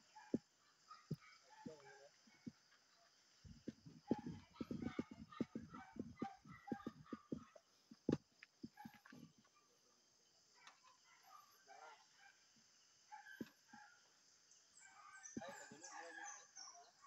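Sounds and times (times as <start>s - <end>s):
bird calls: 0.0s - 7.7s, 14.6s - 17.0s
ladder knocking against pole: 3.6s - 7.4s.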